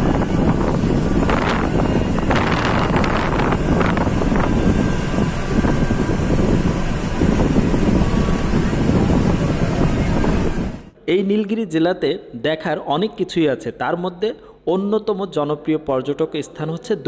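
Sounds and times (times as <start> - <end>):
bus engine and road rumble: 0.0 - 11.0
wind buffeting microphone: 0.0 - 11.0.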